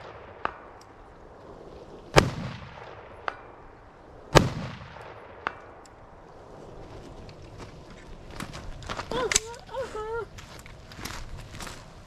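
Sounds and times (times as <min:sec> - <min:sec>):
rifle shots: 0:02.1 - 0:03.5, 0:04.3 - 0:05.8.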